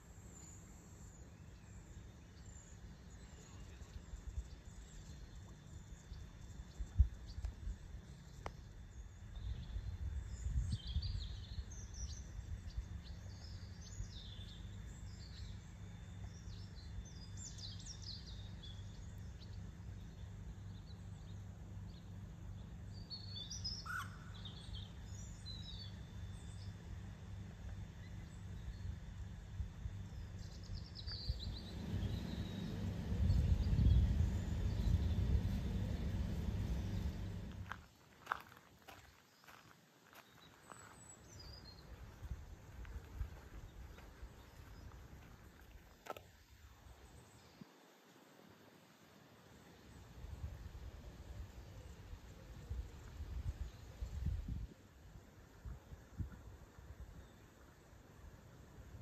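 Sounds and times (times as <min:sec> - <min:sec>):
low outdoor rumble: 0:00.0 - 0:47.6, 0:49.4 - 0:59.0
small birds chirping: 0:00.0 - 0:47.8.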